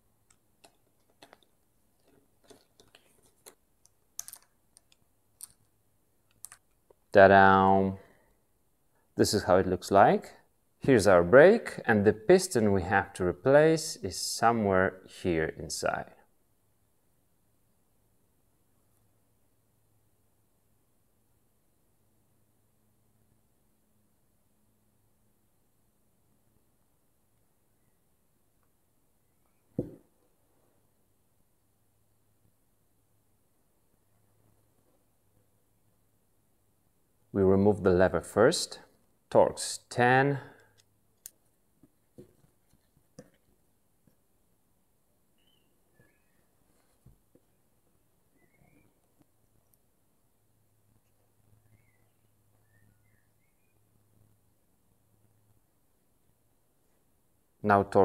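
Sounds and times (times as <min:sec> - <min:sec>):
small parts clicking and tapping: 0:00.2 - 0:07.0.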